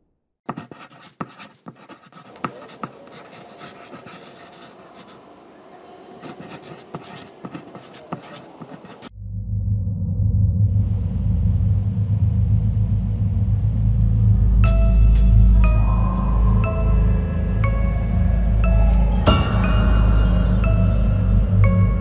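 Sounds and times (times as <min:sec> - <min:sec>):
pen scratching on paper: 0:00.5 - 0:05.2, 0:06.1 - 0:09.1
low rumble: 0:09.1 - 0:21.9.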